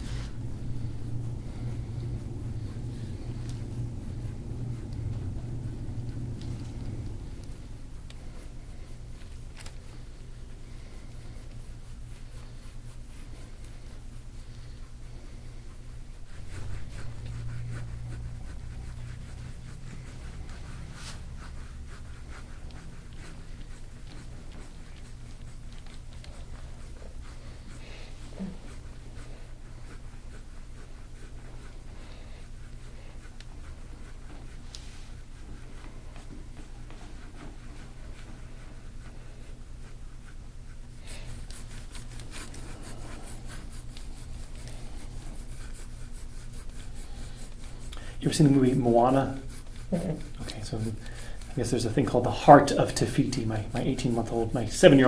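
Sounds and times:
steady low hum: 0.0 - 55.0
scraping tool rasping over skin: 15.7 - 55.0
scraping tool on oiled skin: 40.2 - 55.0.

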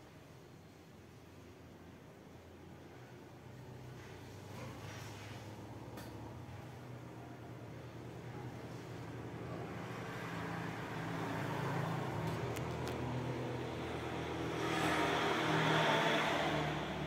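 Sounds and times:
vehicle engine hum: 3.0 - 17.0
road vehicle passing: 3.5 - 17.0.

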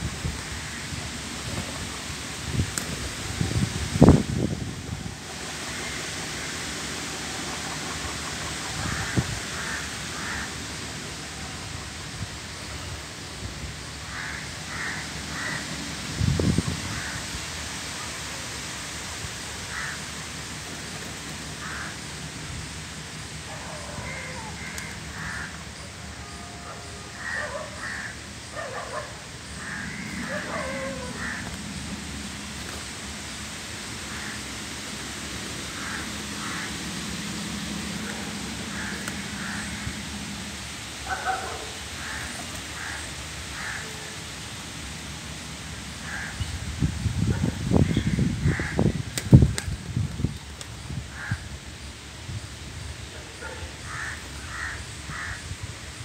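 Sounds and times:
steady background noise: 0.0 - 56.0
steady outdoor hiss: 0.0 - 56.0
crows cawing: 8.6 - 10.8, 14.0 - 15.8, 16.8 - 17.3, 19.7 - 20.1, 21.6 - 22.1, 23.7 - 25.6, 26.2 - 31.8, 34.0 - 34.5, 35.7 - 36.9, 38.2 - 40.0, 41.1 - 44.2, 46.0 - 46.4, 47.8 - 49.0, 51.1 - 51.5, 53.8 - 55.6.

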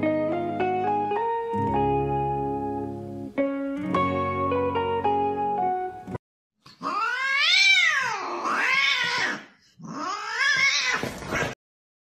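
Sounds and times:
acoustic guitar music: 0.0 - 6.2
cat meowing: 6.8 - 11.6.

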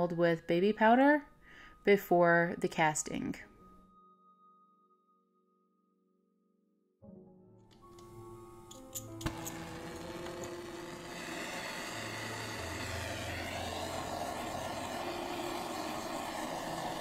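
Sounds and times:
torch flame rushing: 9.2 - 17.0.

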